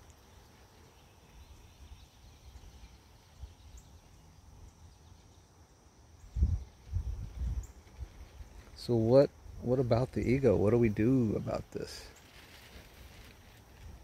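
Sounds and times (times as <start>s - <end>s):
faint bird chirps: 0.0s - 9.1s.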